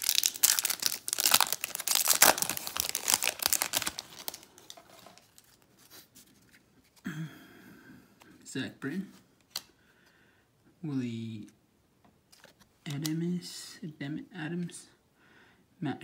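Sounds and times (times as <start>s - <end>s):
wrapper crinkling and tearing: 0.0s - 5.7s
handling of cards: 0.0s - 7.0s, 9.1s - 9.7s, 12.3s - 13.2s.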